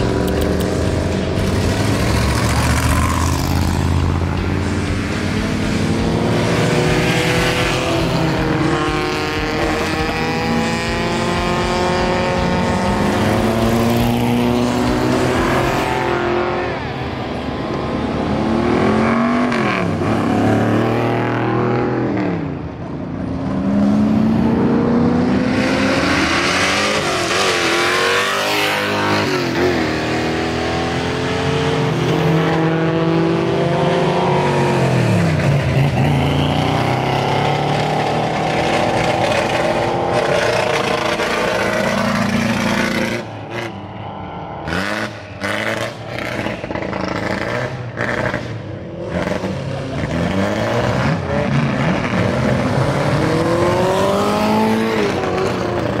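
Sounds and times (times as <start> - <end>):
race car engines revving: 0.0 - 56.0.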